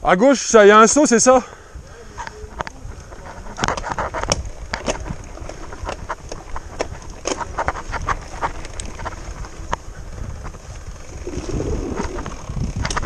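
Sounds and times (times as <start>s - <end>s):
steady low rumble: 1.6s - 13.0s
bike parts clattering: 3.1s - 9.8s.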